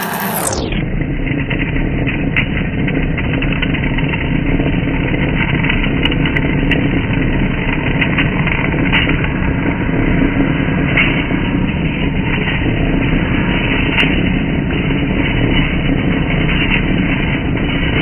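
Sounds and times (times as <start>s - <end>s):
metal lathe cutting: 0.0s - 0.6s.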